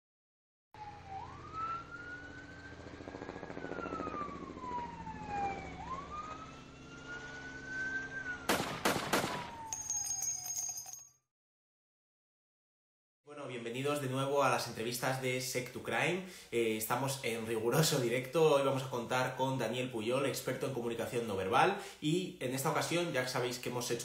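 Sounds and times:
police siren wailing: 0.8s - 9.8s
sharp loud bangs: 8.5s - 9.7s.

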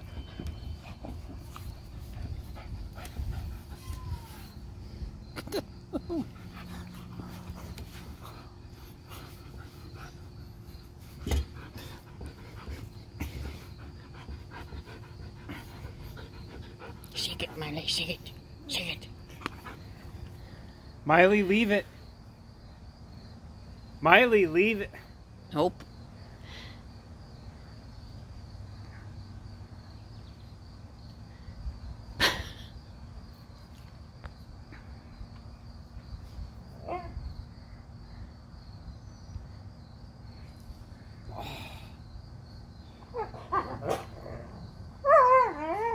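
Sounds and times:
dog panting: 0.0s - 4.6s, 6.2s - 18.3s
crickets droning: 0.0s - 45.9s.

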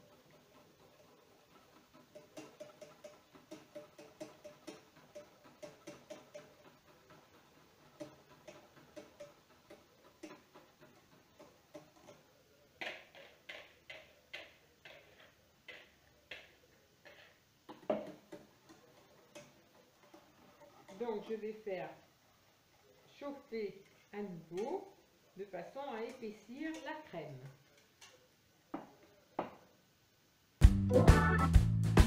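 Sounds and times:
utensil clicking against saucepan: 2.0s - 21.0s, 26.1s - 26.9s.

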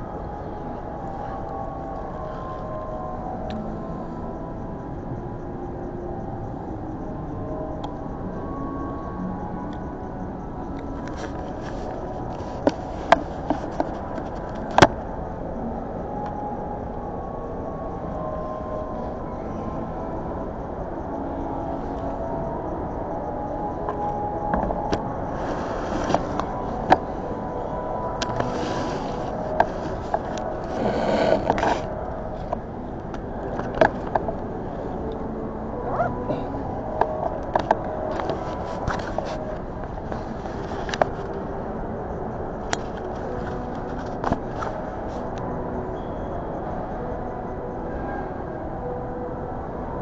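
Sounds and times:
faint steady tone: 0.0s - 50.0s
food court background hum: 0.0s - 50.0s.

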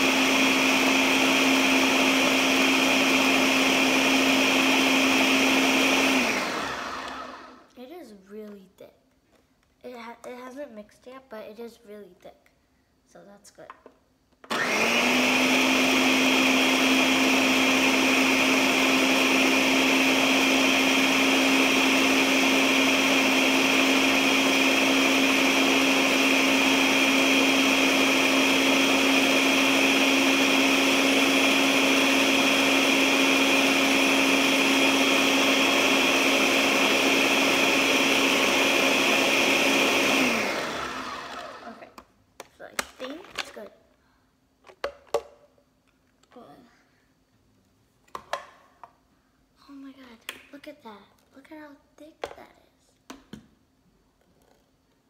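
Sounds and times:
electric blender motor: 0.0s - 7.7s, 14.5s - 42.0s.

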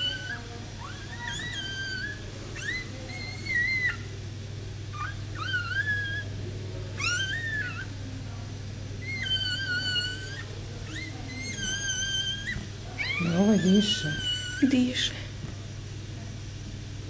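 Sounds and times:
puppies squealing: 0.0s - 4.1s, 4.9s - 6.4s, 7.0s - 8.0s, 9.0s - 15.0s.

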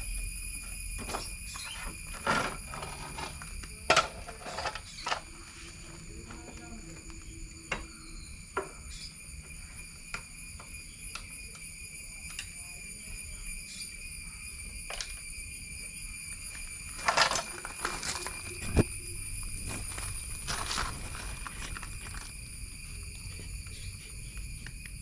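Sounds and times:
high insect drone: 0.0s - 25.0s
rustling and shuffling: 16.6s - 22.5s.

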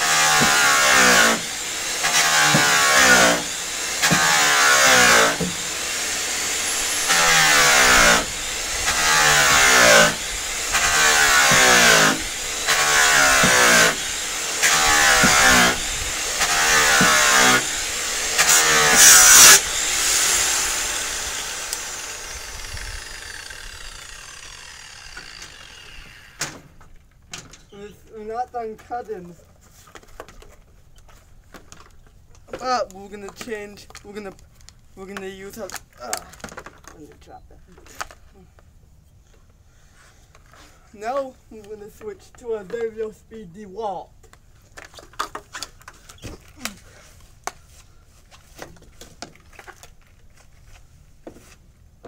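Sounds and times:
electric polisher motor: 0.0s - 26.4s.

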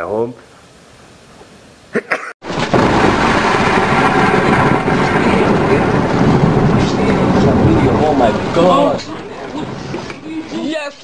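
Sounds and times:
thunder crack: 2.4s - 10.9s
thunder rumbling: 2.4s - 10.9s.

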